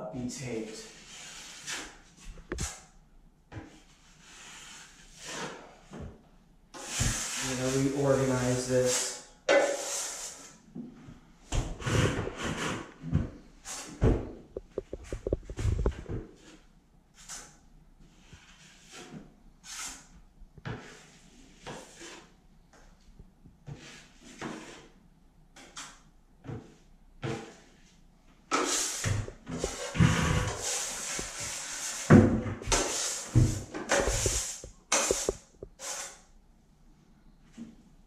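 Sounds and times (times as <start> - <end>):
metal drywall tools scraping: 3.6 - 6.1, 6.8 - 10.6, 11.8 - 14.1, 17.2 - 22.3, 23.6 - 25.0, 28.5 - 36.3.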